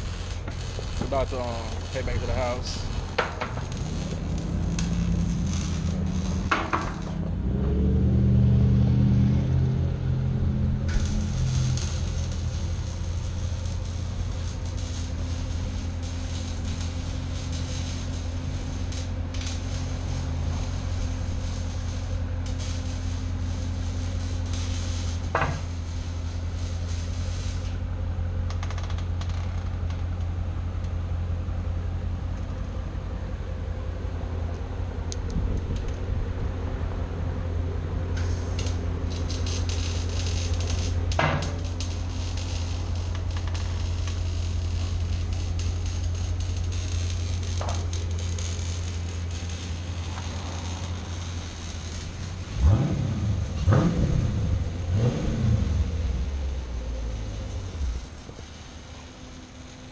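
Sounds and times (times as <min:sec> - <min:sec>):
car engine idling: 0:09.8 - 0:59.9.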